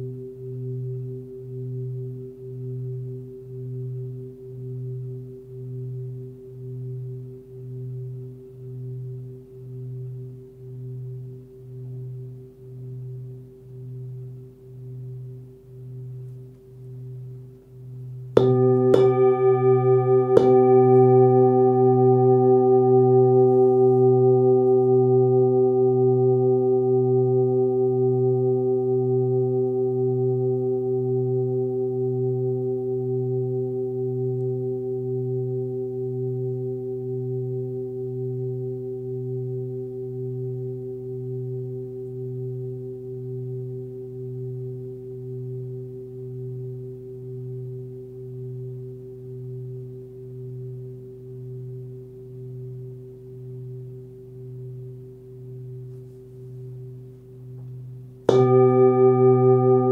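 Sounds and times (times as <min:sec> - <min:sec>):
singing bowl ringing: 0:18.3 - 0:59.9
mallet striking singing bowl: 0:18.4 - 0:21.4, 0:57.6 - 0:59.9.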